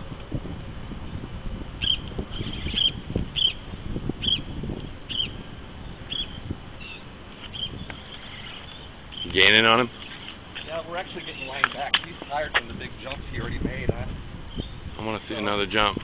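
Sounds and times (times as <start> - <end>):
wind rumble on microphone: 0.0 - 16.0
short high chirps: 1.8 - 3.6.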